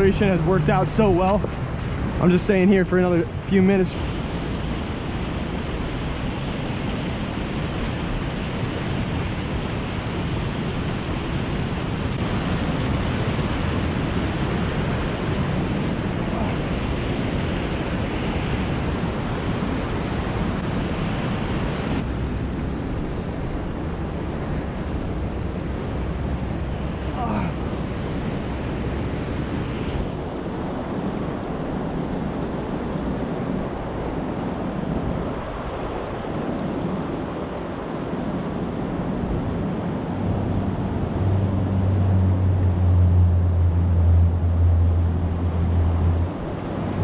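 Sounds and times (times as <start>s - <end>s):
stream rushing over rocks: 3.7s - 22.2s, 24.3s - 30.2s.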